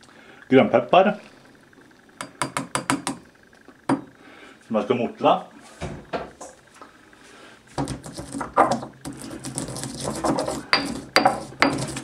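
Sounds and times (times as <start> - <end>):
pestle knocking on mortar: 2.3 - 3.2, 7.8 - 12.0
pestle grinding peppercorns: 7.7 - 12.0.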